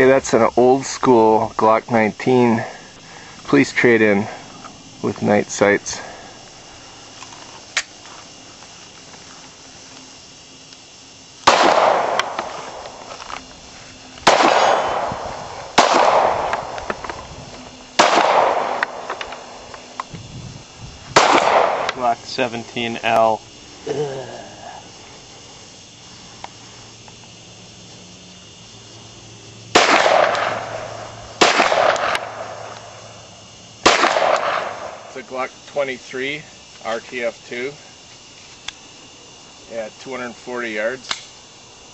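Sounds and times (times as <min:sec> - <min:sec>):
pistol shots with echo: 0:11.4 - 0:12.8, 0:14.2 - 0:16.8, 0:18.0 - 0:19.5, 0:21.2 - 0:22.0, 0:29.7 - 0:32.7, 0:33.8 - 0:35.0.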